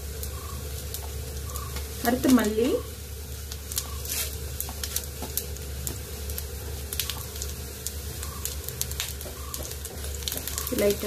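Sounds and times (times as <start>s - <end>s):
crackles and pops: 0.0s - 11.0s
seeds sizzling in hot oil: 0.0s - 11.0s.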